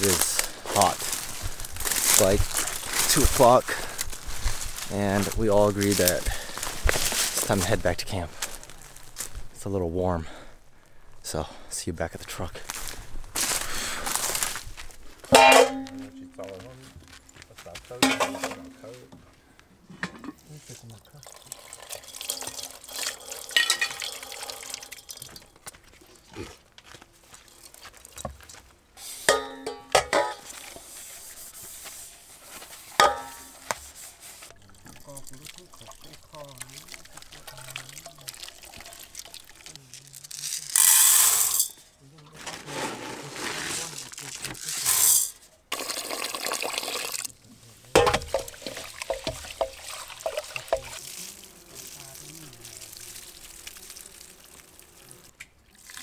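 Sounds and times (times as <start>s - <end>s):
metal pots clanking: 15.2s - 16.5s, 18.0s - 18.8s, 19.9s - 20.4s, 21.4s - 25.6s, 29.2s - 30.9s, 33.0s - 33.6s, 47.9s - 51.0s
water splashing into metal pot: 15.3s - 16.2s, 21.2s - 25.6s, 33.0s - 33.6s, 34.5s - 39.9s, 45.7s - 47.3s, 48.0s - 51.3s, 55.6s - 56.0s
dishes being scrubbed: 29.1s - 36.2s, 48.2s - 51.0s
rice washed by hand splashing: 30.4s - 40.0s, 48.3s - 54.9s.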